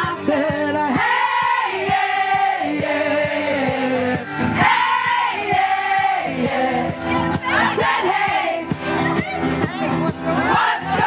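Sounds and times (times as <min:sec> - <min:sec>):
rhythmic accompaniment: 0:00.0 - 0:11.0.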